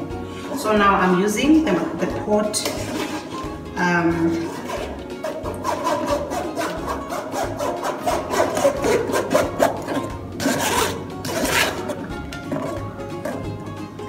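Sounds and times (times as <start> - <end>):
metal spoon scraping mesh strainer: 2.5 - 3.5, 4.2 - 13.4.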